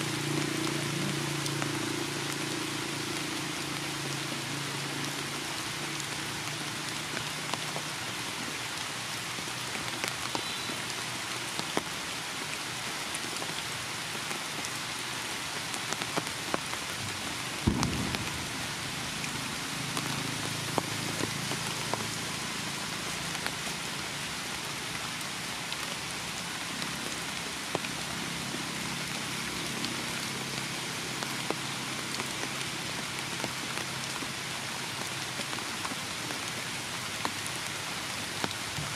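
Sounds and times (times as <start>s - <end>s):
heavy rain on leaves: 0.0s - 38.9s
raindrops ticking: 0.1s - 30.4s
loud thump: 17.7s - 18.3s.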